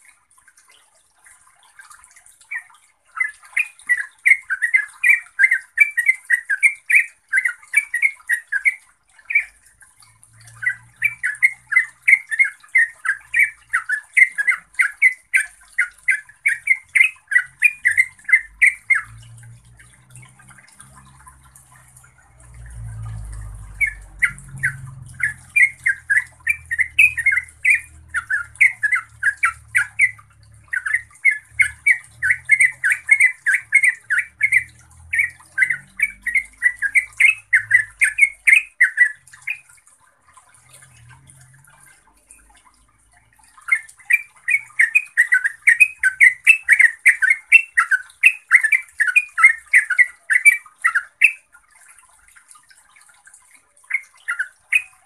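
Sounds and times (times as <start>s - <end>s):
bird singing chattering notes: 2.5s - 9.6s, 10.5s - 21.9s, 22.6s - 39.7s, 43.6s - 51.5s.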